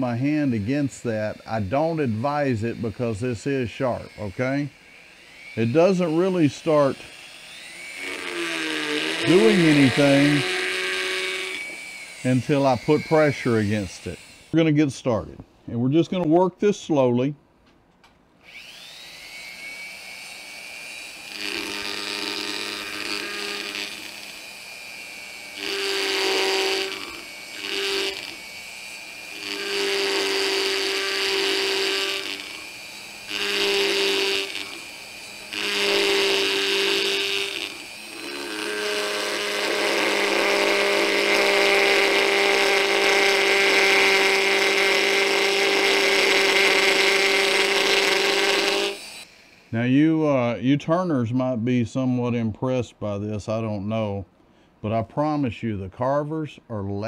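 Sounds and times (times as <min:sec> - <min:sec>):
bit grinding wood: 0:00.0 - 0:14.9, 0:18.5 - 0:50.5
rotary tool spinning: 0:03.9 - 0:14.6, 0:18.4 - 0:49.7.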